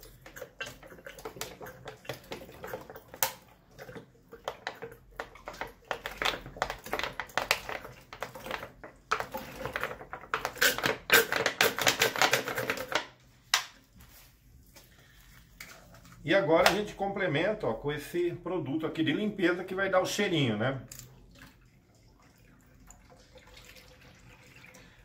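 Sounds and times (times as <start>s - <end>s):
liquid glugging from a bottle: 0.0s - 10.4s.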